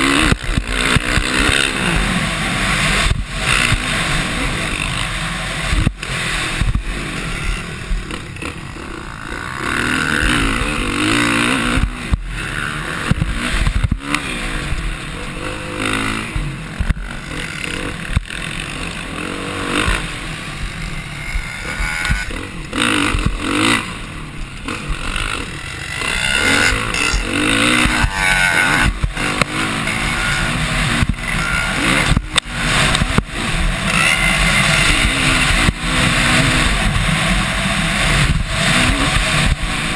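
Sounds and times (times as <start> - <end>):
dirt bike engine revving: 0.0 - 39.9
wind rush on microphone: 31.9 - 39.9.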